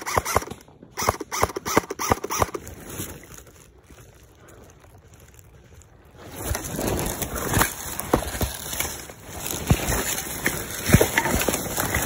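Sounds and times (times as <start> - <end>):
footsteps crunching through dry leaves: 2.6 - 12.0.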